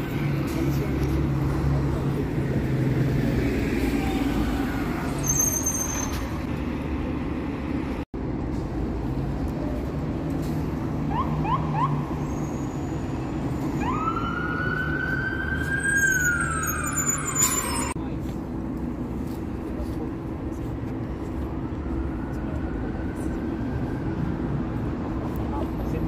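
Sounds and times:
buses running past: 0.0 - 26.0
city traffic: 0.0 - 26.0
emergency vehicle siren: 11.1 - 12.4, 13.5 - 18.0, 21.6 - 25.4.

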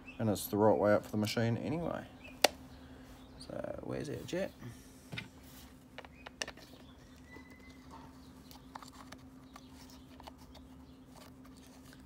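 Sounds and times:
low steady hum: 0.0 - 12.0
plastic parts clicking and tapping: 5.9 - 6.8.

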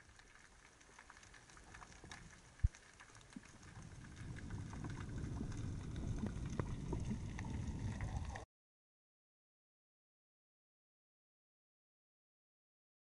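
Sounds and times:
faint clicks and crackles: 0.0 - 8.5
underwater water rumble: 0.0 - 8.5.

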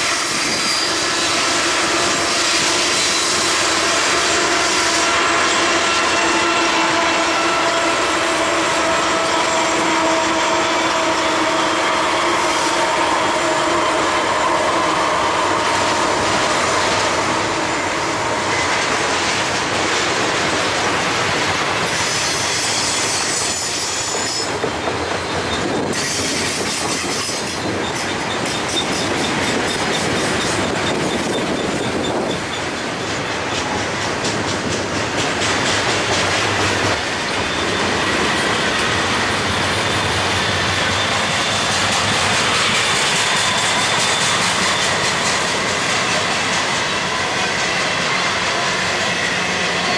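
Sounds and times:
high-pitched wheel squeal: 0.0 - 19.1, 21.8 - 33.0, 37.2 - 49.9
steel wheels rumbling on rail: 0.0 - 49.9.

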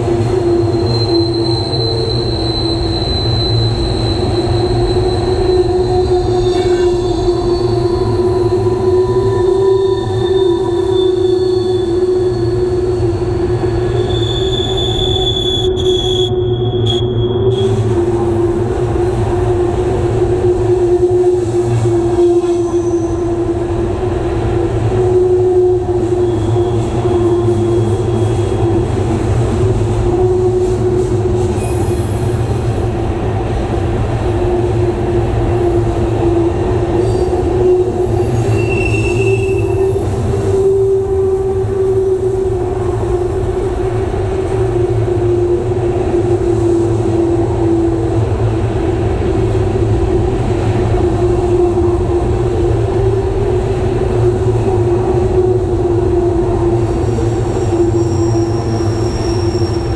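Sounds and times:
high wheel squeal: 0.0 - 23.5, 25.1 - 48.8, 55.2 - 59.9
freight cars rumbling on rails: 0.0 - 59.9.

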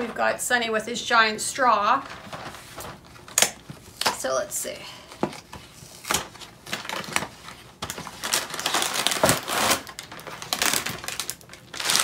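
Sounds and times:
plastic bag rustling: 1.9 - 4.0, 5.4 - 12.0.

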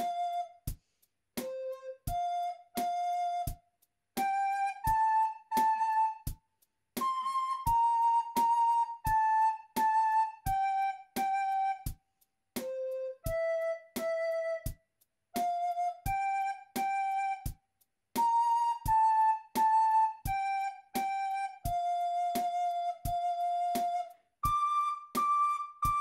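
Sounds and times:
recorder melody: 4.2 - 6.3, 18.2 - 26.0.

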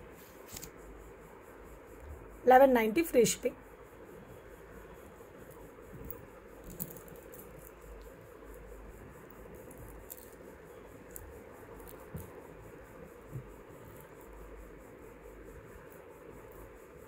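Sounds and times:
room hum and hiss: 0.0 - 17.0
necklace pendant clicking: 6.0 - 8.6, 9.4 - 10.4, 11.1 - 12.4.

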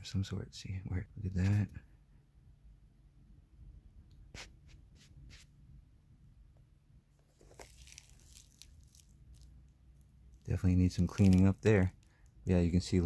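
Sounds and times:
sneakers rustling when handled: 7.2 - 9.2.

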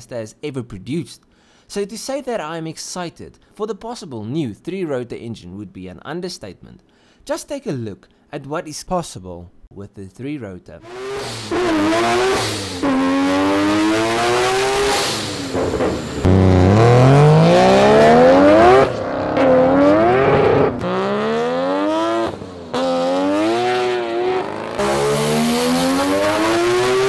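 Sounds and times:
rotary engine revving: 10.8 - 27.0.

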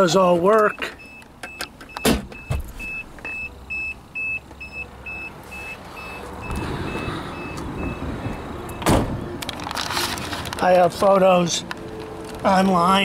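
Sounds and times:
car warning chime beeping: 0.2 - 9.4
rustling handling noise: 9.4 - 12.7.

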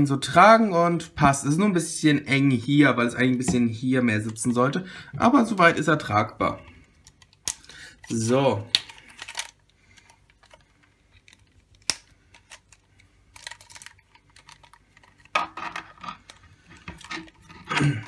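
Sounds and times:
plastic toy clicking and rattling: 8.8 - 17.8.

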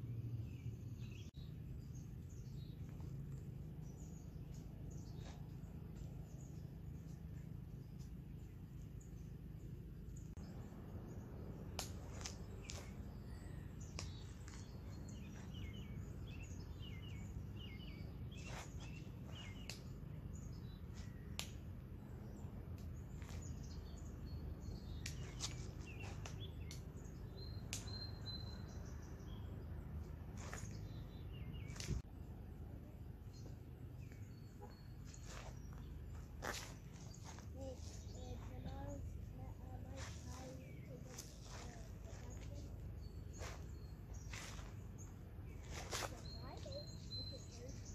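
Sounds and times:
low steady rumble: 0.0 - 47.9
small birds chirping: 0.0 - 47.9.

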